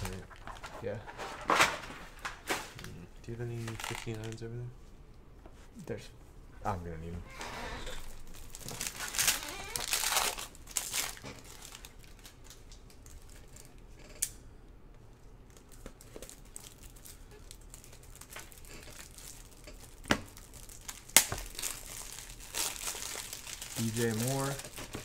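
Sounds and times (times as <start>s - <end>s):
handling of cards: 0.0s - 4.5s, 7.9s - 14.3s, 15.4s - 25.0s
foil pack tearing and crinkling: 3.7s - 4.4s, 8.0s - 13.7s, 16.0s - 25.0s.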